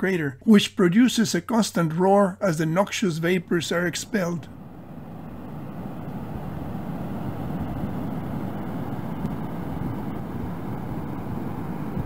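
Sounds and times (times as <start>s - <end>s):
steam and gas venting roar: 3.5s - 12.0s.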